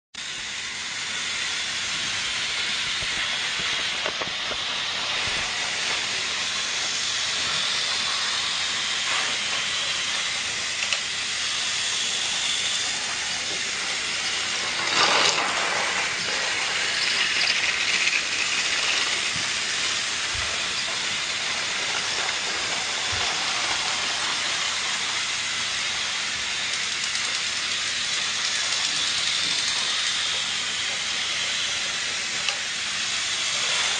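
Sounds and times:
steady hiss: 0.4 - 33.9
clatter: 11.8 - 24.5, 26.7 - 33.9.

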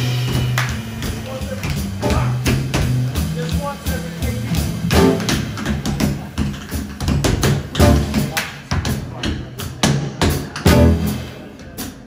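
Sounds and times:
walking upright bass line: 0.0 - 10.0, 10.6 - 11.4
jazz drums: 0.0 - 12.0.

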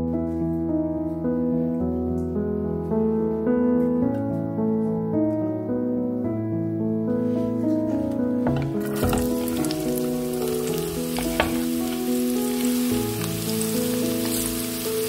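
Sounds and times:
gentle piano tune: 0.0 - 15.0
vegetables sizzling in oil: 8.5 - 15.0.

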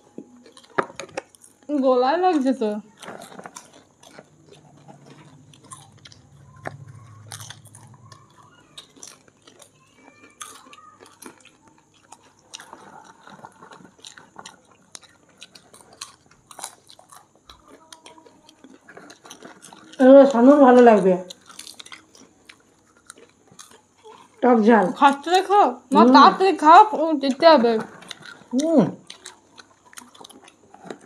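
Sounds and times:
people crunching popcorn: 0.0 - 31.0.

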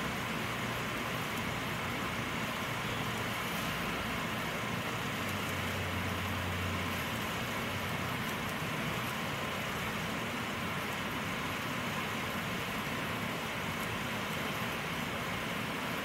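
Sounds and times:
constant mechanical hiss: 0.0 - 16.0
low engine hum: 0.0 - 16.0.

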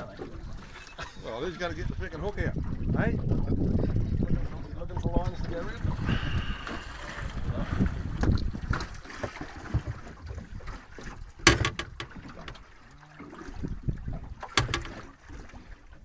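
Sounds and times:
water around boat: 0.0 - 16.0
wind on microphone: 1.5 - 12.6, 13.3 - 15.1
sharp knocks: 11.4 - 12.6, 14.4 - 15.0.

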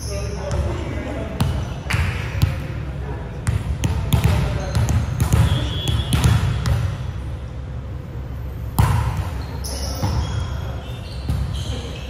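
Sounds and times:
volleyball struck with sharp slap: 3.5 - 7.0, 8.8 - 9.3
short high squeaks: 9.3 - 12.0.

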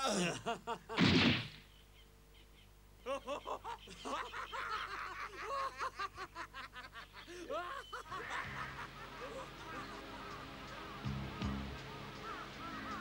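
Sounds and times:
cartoon voices laughing: 0.0 - 1.0, 3.0 - 10.4.

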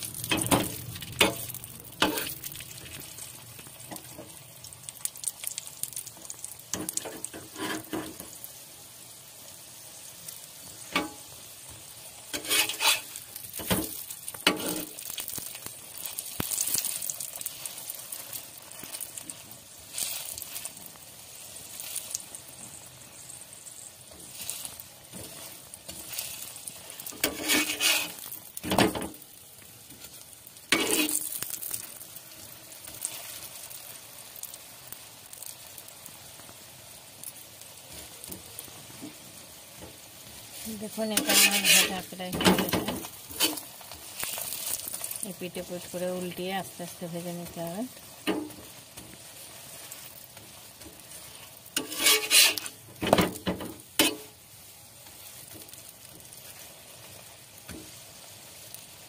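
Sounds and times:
flatbread sizzling in oil: 0.0 - 59.0
utensil scraping and knocking pan: 0.3 - 2.4, 6.8 - 8.3, 12.3 - 15.0, 27.2 - 29.1, 30.7 - 31.3, 41.0 - 43.6, 51.8 - 54.3.

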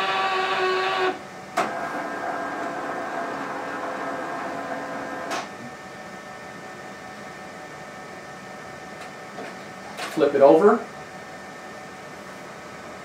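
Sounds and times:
card printer motor whirring: 0.0 - 5.4.

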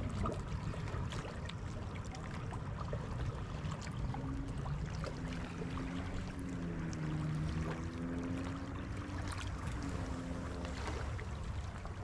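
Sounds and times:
water washing along bank: 0.0 - 12.0
distant engine droning: 3.0 - 12.0.

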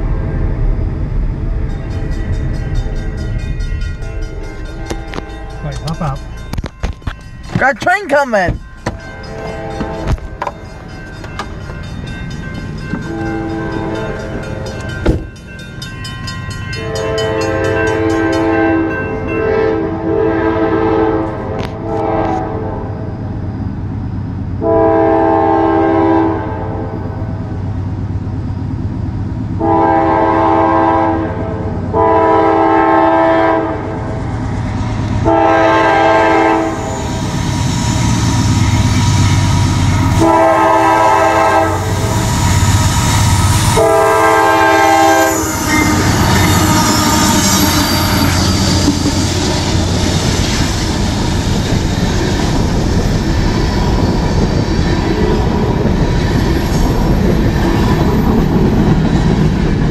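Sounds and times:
train wheels on rails: 0.0 - 19.7, 31.6 - 59.9
diesel locomotive rumble: 0.0 - 59.9
locomotive air horn blasts: 16.8 - 22.9, 24.6 - 26.9, 29.6 - 34.0, 35.2 - 37.0, 40.0 - 42.2, 43.2 - 48.8.

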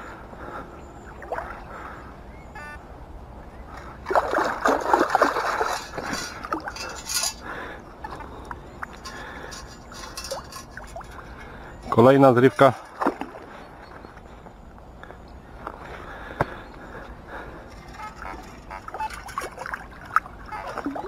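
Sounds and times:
water sloshing and splashing: 1.1 - 1.9, 3.7 - 14.3, 17.3 - 21.0
short beep: 2.6 - 2.8.

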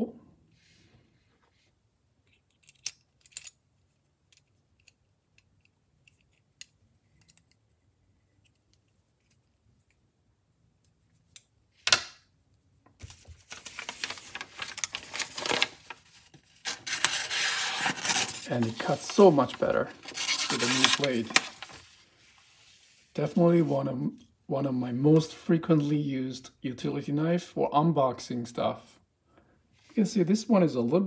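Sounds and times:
blade slicing paper: 16.7 - 19.4, 20.0 - 21.8.

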